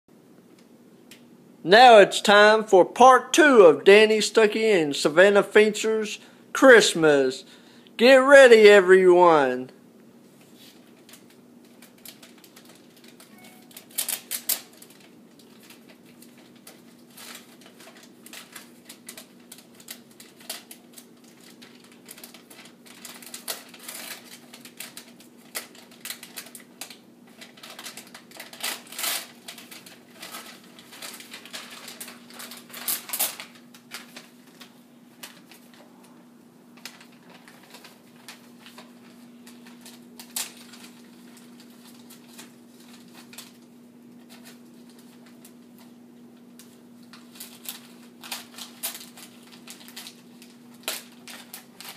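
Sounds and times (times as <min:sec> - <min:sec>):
wrapping paper crinkling and tearing: 0:10.3 - 0:51.9
steady low hum: 0:14.8 - 0:51.9.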